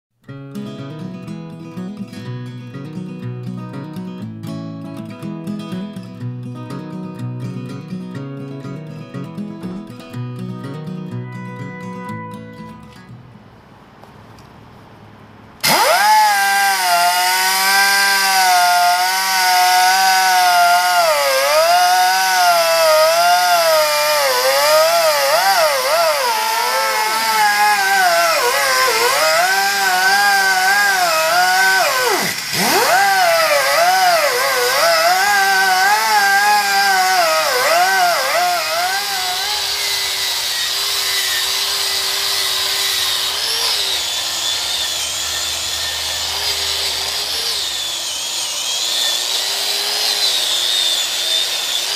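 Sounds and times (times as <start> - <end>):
wire brush grinder on metal: 15.6 - 51.9.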